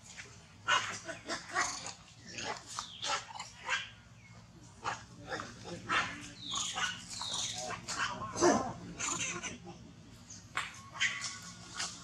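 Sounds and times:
macaques squealing and calling: 0.7 - 4.0, 4.8 - 9.8, 10.9 - 12.0.

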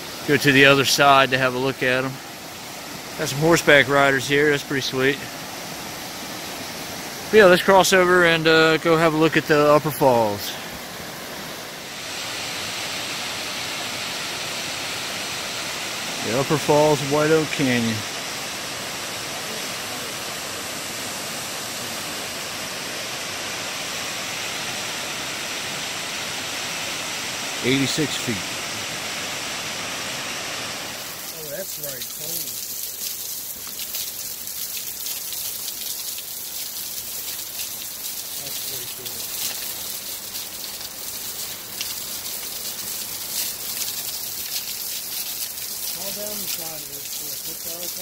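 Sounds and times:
waterfall rushing: 0.0 - 48.0
water spray splattering on rock: 31.0 - 48.0.

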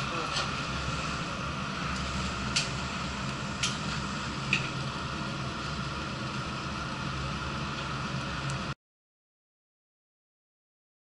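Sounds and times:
train car hum: 0.0 - 8.7.

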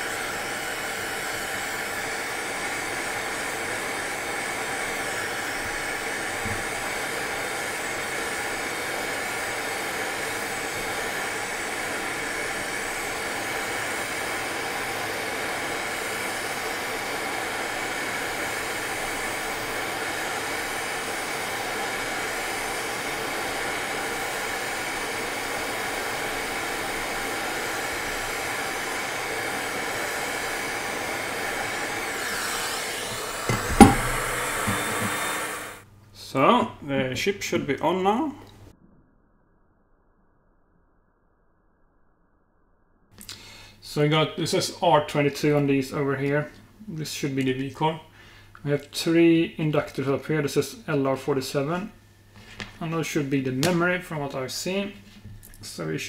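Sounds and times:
hot air rework station blowing: 0.0 - 36.7.

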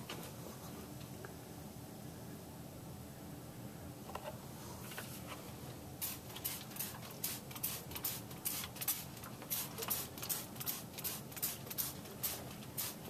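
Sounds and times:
spray bottle squirting: 6.0 - 13.0.

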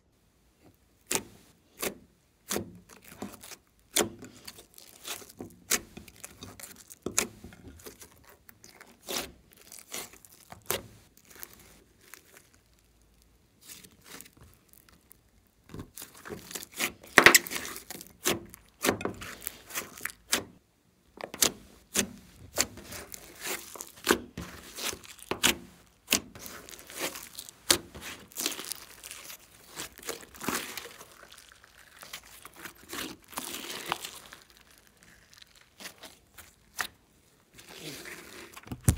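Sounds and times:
slime squelching: 1.0 - 38.9
trapped air popping in slime: 38.7 - 38.9.

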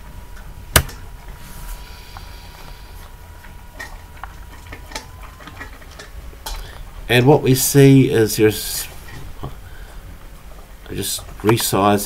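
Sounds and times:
low room hum: 0.0 - 12.0
keyboard key press: 0.8 - 1.0.

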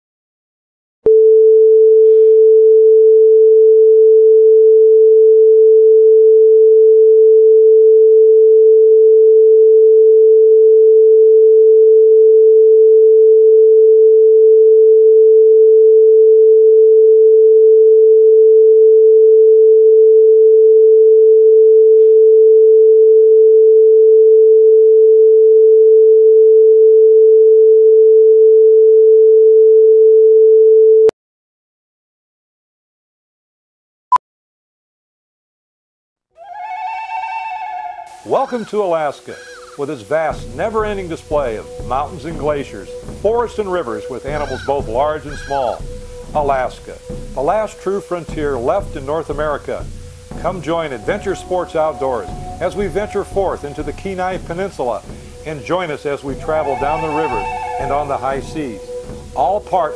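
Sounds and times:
steady pure test tone: 40.1 - 59.9.

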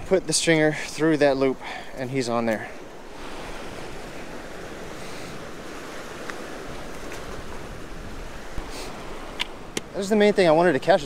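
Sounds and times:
surf washing against rocks: 0.0 - 11.0.

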